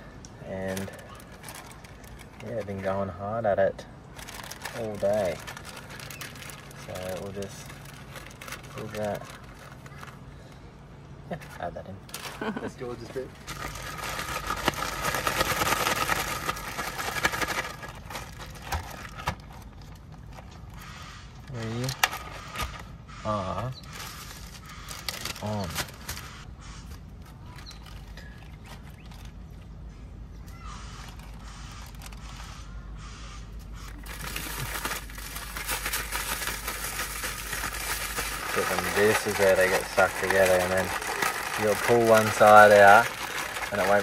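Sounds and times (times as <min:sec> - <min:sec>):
plastic bag rustling and crinkling: 0:00.6 - 0:03.1, 0:04.1 - 0:10.3, 0:11.3 - 0:20.8, 0:23.8 - 0:26.5, 0:27.2 - 0:29.6, 0:33.8 - 0:44.0.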